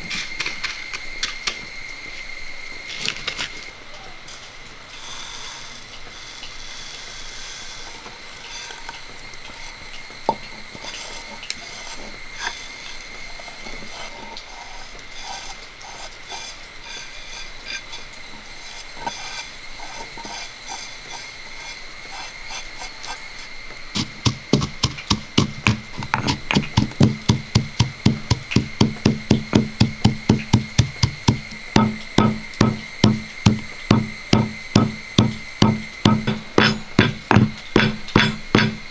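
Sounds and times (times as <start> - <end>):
pestle pounding in stone mortar: 24.0 - 38.9
seeds pattering into stone mortar: 24.0 - 38.9.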